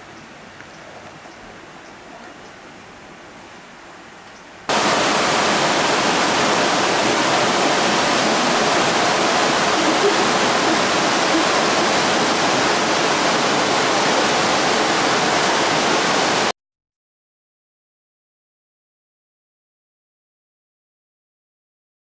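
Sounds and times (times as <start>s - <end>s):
heavy rain: 4.7s - 16.5s
river rushing: 4.7s - 16.5s.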